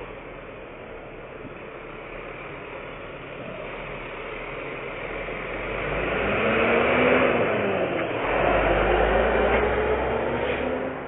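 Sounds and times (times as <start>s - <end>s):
truck rumble and hiss: 0.0s - 11.0s.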